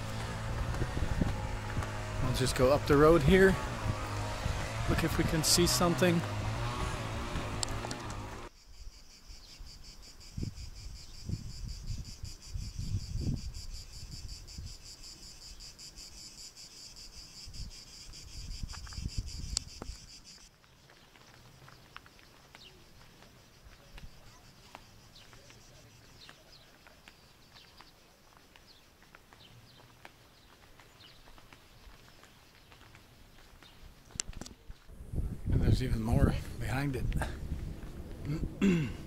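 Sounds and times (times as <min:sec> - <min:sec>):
low rumbling thumps: 0:00.0 - 0:03.0, 0:03.6 - 0:05.6
cicadas shrilling: 0:00.0 - 0:34.2
faint chirps: 0:08.6 - 0:29.9.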